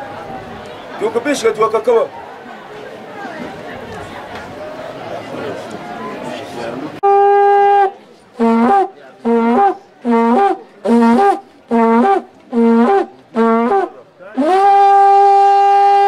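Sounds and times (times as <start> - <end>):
wooden trumpet blasts: 7.0 - 16.0.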